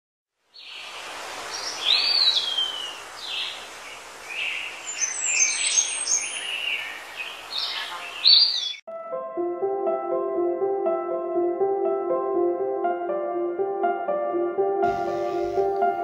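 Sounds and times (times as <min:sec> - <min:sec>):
outdoor ambience hiss: 0:00.4 - 0:08.7, 0:14.8 - 0:16.0
birds chirping and calling: 0:01.5 - 0:08.8.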